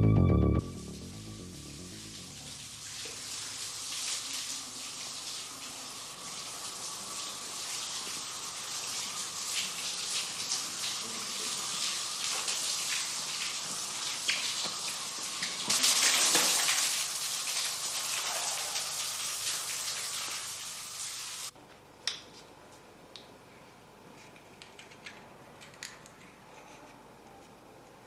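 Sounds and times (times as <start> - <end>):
showers running: 0.0 - 4.0.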